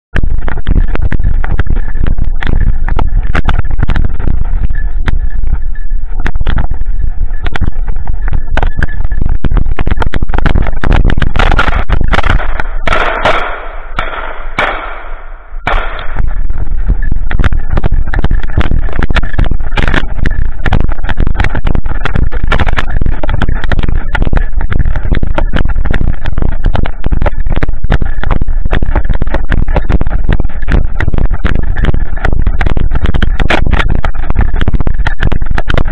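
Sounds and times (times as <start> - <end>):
microphone handling rumble: 0.1 - 35.9
clicks and knocks: 9.8 - 27.6.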